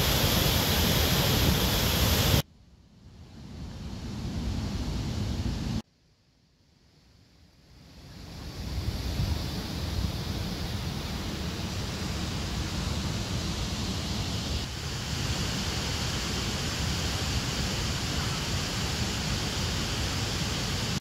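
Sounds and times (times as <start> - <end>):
waterfall and rapids rushing: 0.0 - 2.4, 8.1 - 21.0.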